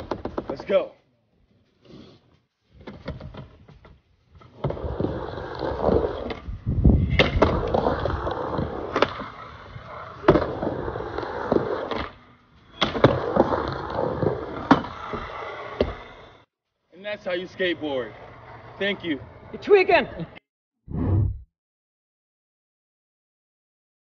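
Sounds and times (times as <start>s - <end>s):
skateboard wheels rolling on wood: 2.6s - 16.5s, 17.4s - 19.6s.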